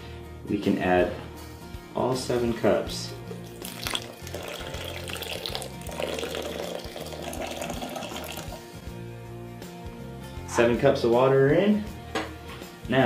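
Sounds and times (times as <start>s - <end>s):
background music: 0.0s - 13.0s
water pouring onto coffee: 3.4s - 8.7s.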